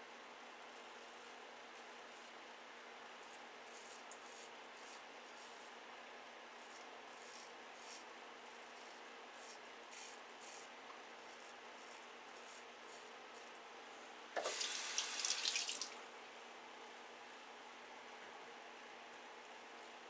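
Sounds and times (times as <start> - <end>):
razor scraping stubble: 3.7 - 5.7, 6.6 - 13.6
tap running into sink: 14.4 - 15.9.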